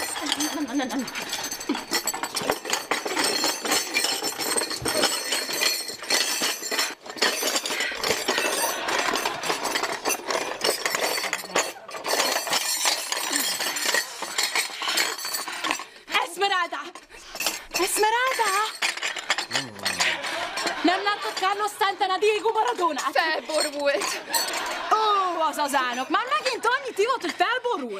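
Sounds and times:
cups and teapot clinking on tray: 0:17.3 - 0:24.9.

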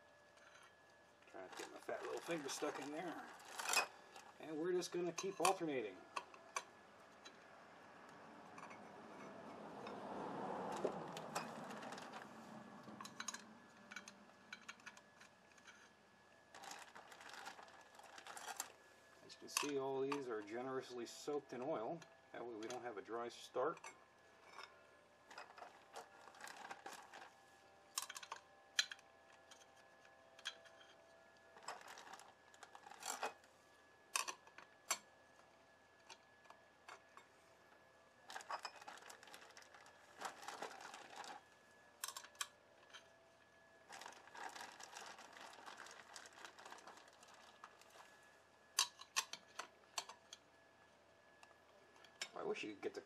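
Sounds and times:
gloved hands rustling: 0:01.5 - 0:04.4.

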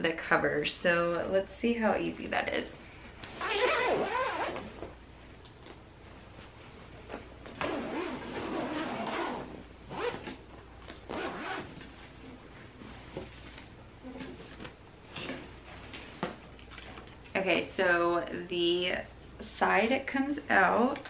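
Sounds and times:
zipper pulled open: 0:03.4 - 0:04.7, 0:07.6 - 0:10.4, 0:11.1 - 0:11.8.

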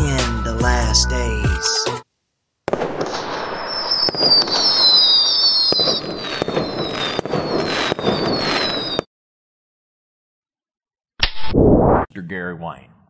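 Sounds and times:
fireworks crackling and bangs: 0:02.7 - 0:09.1
high whistles gliding downward: 0:03.0 - 0:09.1.

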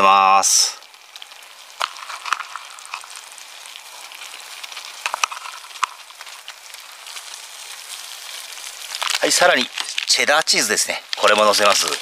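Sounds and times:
sauce bubbling and sizzling: 0:00.0 - 0:12.0
sharp pops: 0:00.8 - 0:10.6.

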